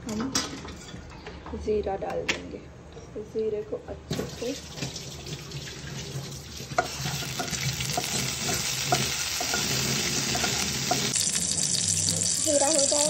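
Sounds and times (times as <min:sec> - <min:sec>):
seeds sizzling in hot oil: 0:06.6 - 0:13.0.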